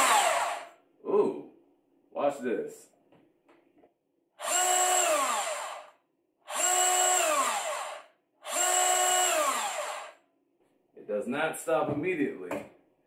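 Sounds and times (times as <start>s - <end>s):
bandsaw running: 0.0s - 0.7s, 4.4s - 5.9s, 6.5s - 10.2s.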